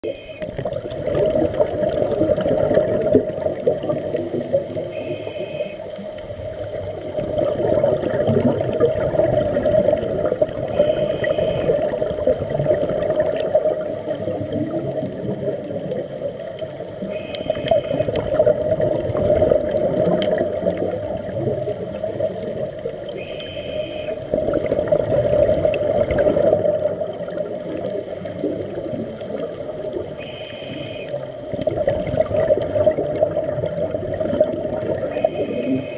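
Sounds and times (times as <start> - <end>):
bubbling exhaled air: 0.0 - 5.2, 6.2 - 35.9
whistling regulator inhales: 30.2 - 31.1.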